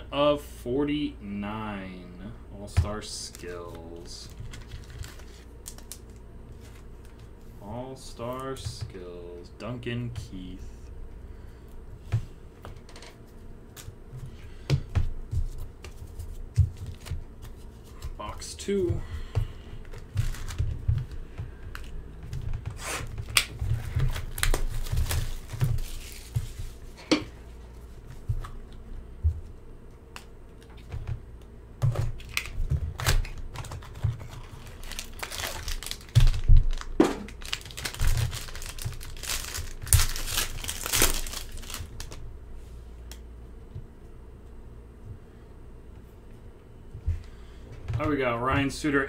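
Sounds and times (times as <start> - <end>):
foil wrapper ripping and crinkling: 4.0 - 6.8, 19.9 - 20.8, 23.0 - 26.6, 32.2 - 42.2.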